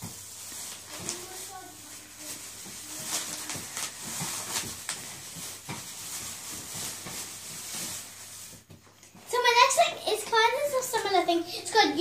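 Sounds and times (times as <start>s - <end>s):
plastic bag rustling: 0.0s - 12.0s.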